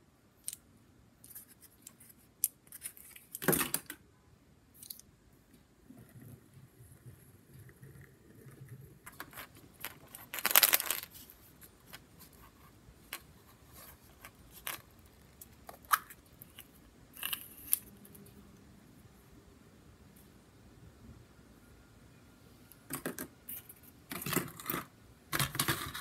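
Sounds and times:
plastic toys clicking and rustling: 0:09.1 - 0:12.0, 0:22.9 - 0:26.0.

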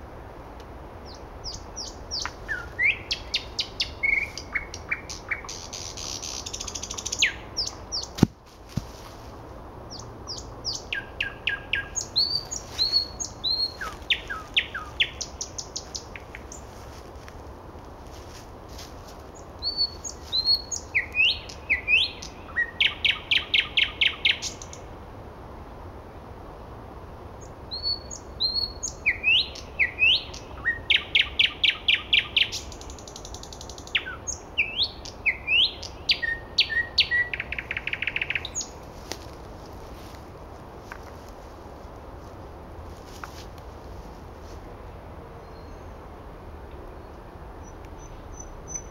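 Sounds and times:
nightingale singing: 0:01.0 - 0:08.3, 0:09.9 - 0:16.8, 0:19.2 - 0:24.9, 0:27.4 - 0:39.3, 0:45.4 - 0:46.0, 0:46.8 - 0:48.9.

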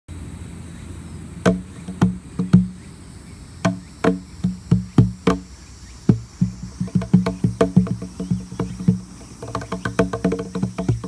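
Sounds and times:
cajon played with hands: 0:01.4 - 0:02.8, 0:03.6 - 0:11.0.

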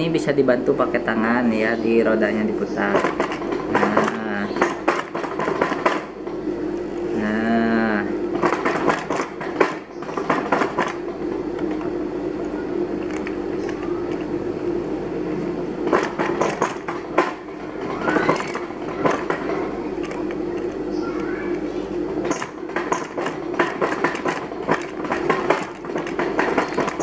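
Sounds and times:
steady hum: 0:00.0 - 0:27.0
sewing machine needle clattering: 0:15.9 - 0:20.8, 0:22.2 - 0:27.0.

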